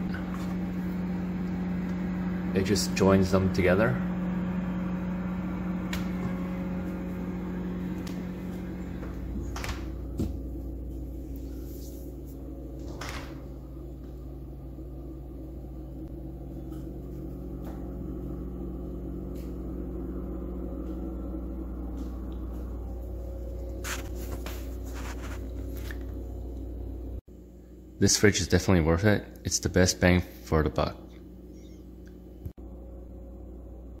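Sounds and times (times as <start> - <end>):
refrigerator humming: 0.0 - 34.0.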